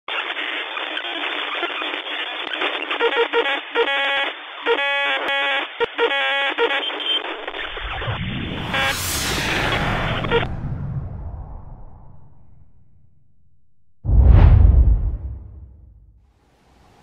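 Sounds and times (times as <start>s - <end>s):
radio static crackle: 0.1s - 10.5s
whoosh: 7.8s - 13.3s, 14.0s - 16.2s.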